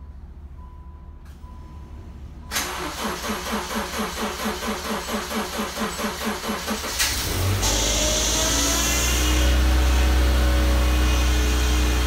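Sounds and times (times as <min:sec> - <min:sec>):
car engine starting and running: 0:02.4 - 0:12.0
starter cranking engine: 0:02.5 - 0:08.9.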